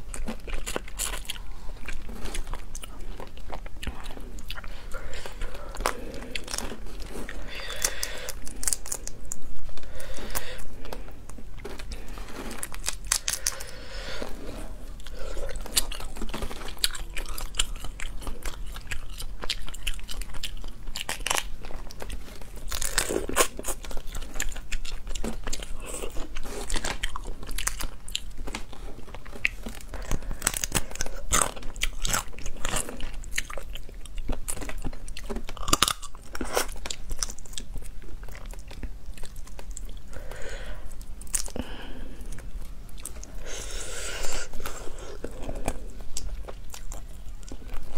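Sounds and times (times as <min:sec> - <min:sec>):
wet chewing: 0:00.0 - 0:47.9
lobster shells cracking: 0:04.6 - 0:13.9, 0:15.0 - 0:40.5.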